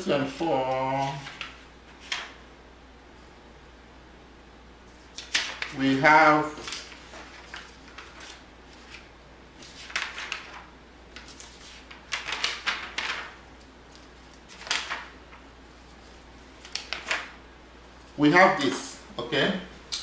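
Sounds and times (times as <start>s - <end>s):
paper rustling and scraping: 0.0s - 2.4s, 4.9s - 17.4s
low room hum: 0.0s - 20.0s.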